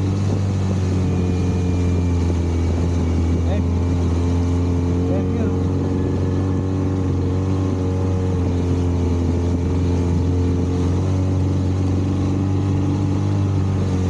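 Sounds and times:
outboard motor droning: 0:00.0 - 0:14.0
water rushing: 0:00.0 - 0:14.0
wind: 0:00.0 - 0:14.0.

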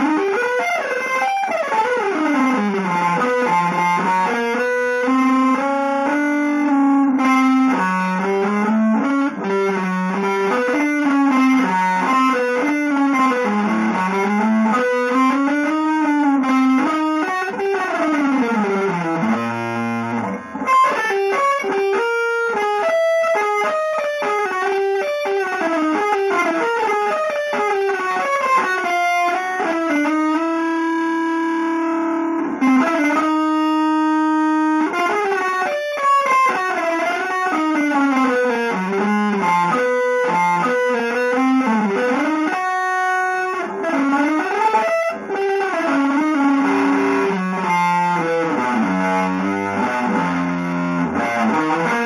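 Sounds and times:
electric guitar runs: 0:00.0 - 0:52.0.

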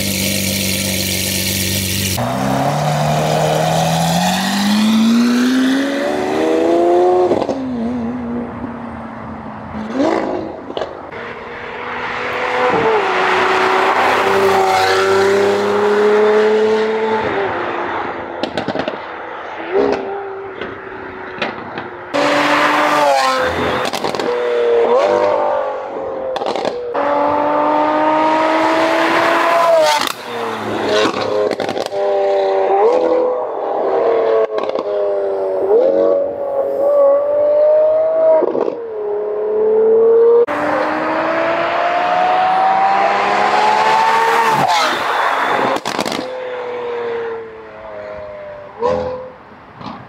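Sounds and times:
sports car engine accelerating: 0:01.5 - 0:48.9
exhaust cracks: 0:23.5 - 0:24.4, 0:31.0 - 0:32.0, 0:45.6 - 0:46.3.

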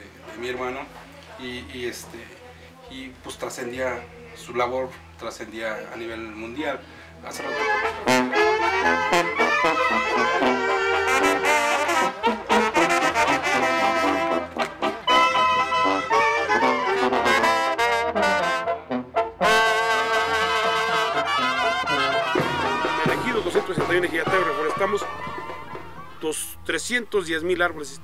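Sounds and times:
horns playing a melody: 0:07.3 - 0:26.8.

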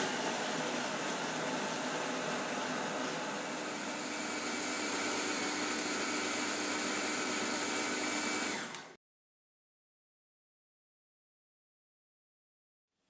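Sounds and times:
blender running: 0:00.0 - 0:09.0.

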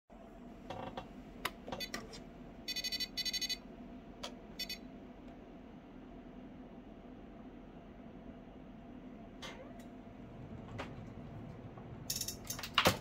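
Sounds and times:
faint steady hum: 0:00.1 - 0:13.0
electronic beeps: 0:02.7 - 0:03.6, 0:04.6 - 0:04.8.

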